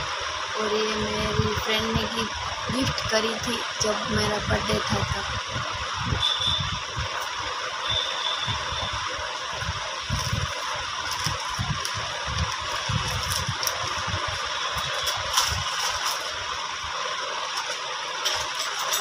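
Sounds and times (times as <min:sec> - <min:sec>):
steady background hiss: 0:00.0 - 0:19.0
rustling: 0:10.1 - 0:16.5.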